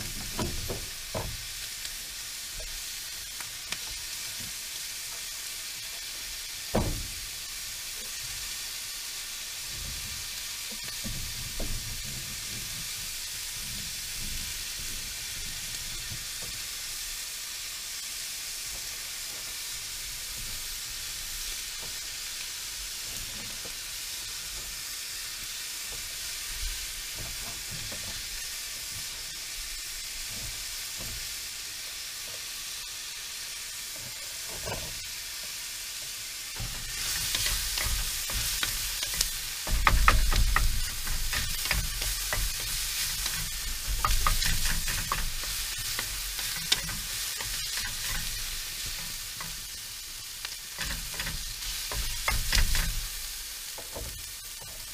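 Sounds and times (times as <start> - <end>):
food sizzling in a pan: 0.0 - 54.9
wooden spatula scraping a pan: 9.6 - 16.8, 25.9 - 31.4, 33.8 - 35.5, 36.6 - 50.0, 50.6 - 54.9.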